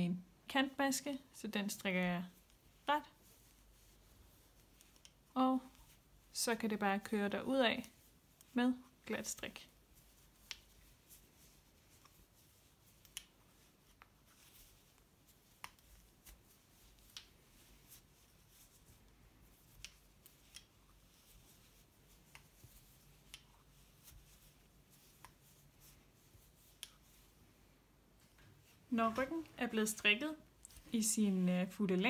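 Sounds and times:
knitting needles clicking: 4.6s - 5.9s, 10.4s - 10.8s, 12.9s - 18.0s, 19.5s - 24.3s, 26.6s - 27.0s.

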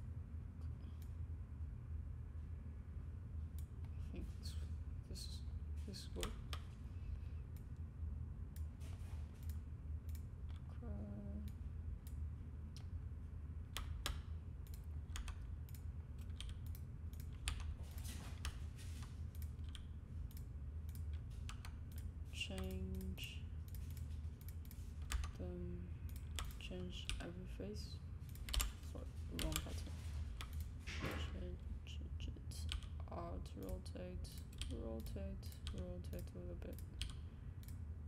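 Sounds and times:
low background hum: 0.0s - 38.0s
keyboard typing: 13.7s - 25.4s, 26.0s - 27.4s, 28.2s - 31.5s.

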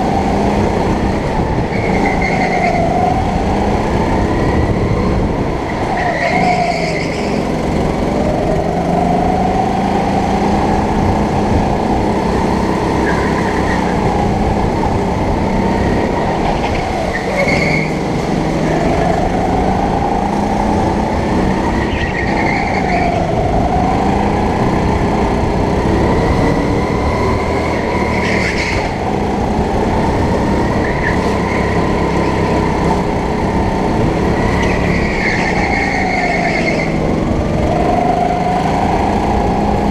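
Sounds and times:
go-kart engine revving: 0.0s - 39.9s
short high tire squeals: 17.2s - 18.0s.

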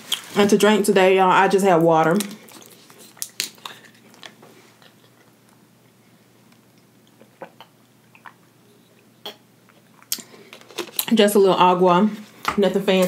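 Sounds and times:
person gulping water: 6.8s - 10.3s.

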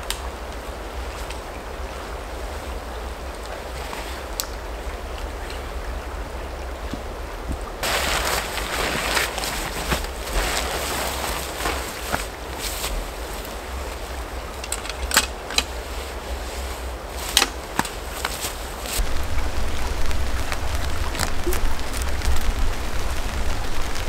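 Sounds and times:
tarp fabric rustling: 0.0s - 4.4s, 7.8s - 24.0s
guyline clicks and snaps: 4.4s - 4.6s
low steady rumble: 18.0s - 24.0s.

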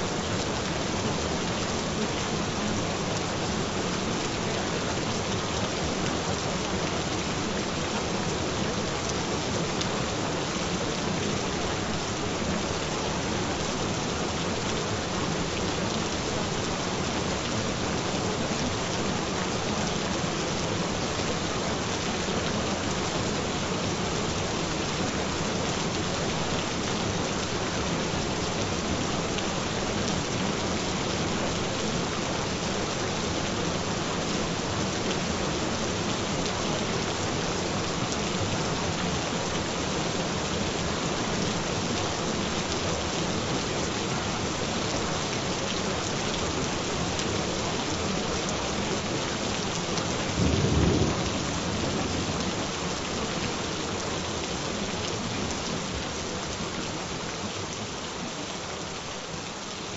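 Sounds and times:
steady rain falling: 0.0s - 59.9s
low rumble of thunder: 50.3s - 52.5s.

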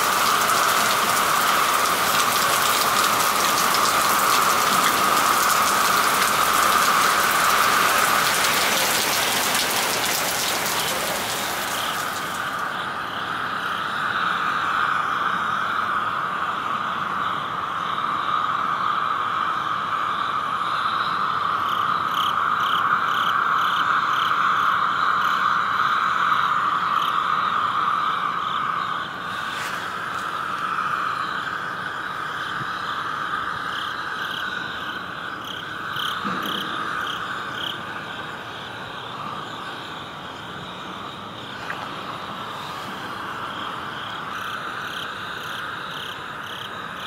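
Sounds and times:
rain on wet street: 0.0s - 12.9s, 29.2s - 31.0s, 35.6s - 46.9s.

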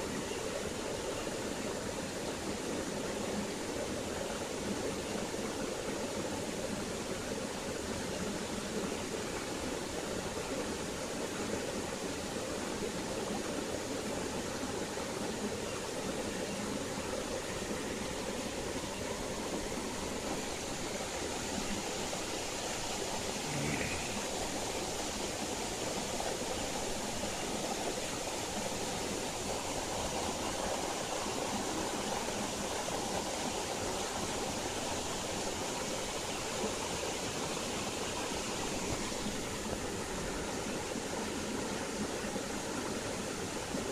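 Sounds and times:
water flowing in shallow stream: 0.0s - 43.9s.

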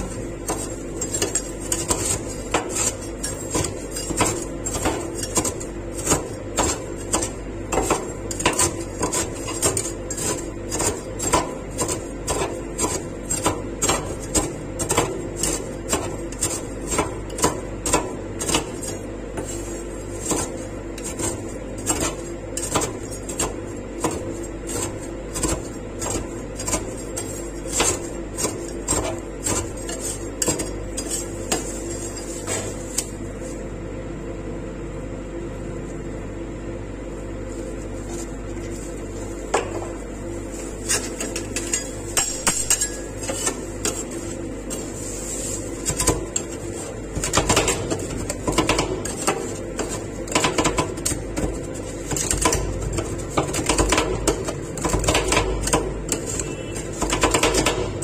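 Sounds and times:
metal spatulas clanking and scraping: 0.0s - 33.0s, 40.8s - 51.5s.

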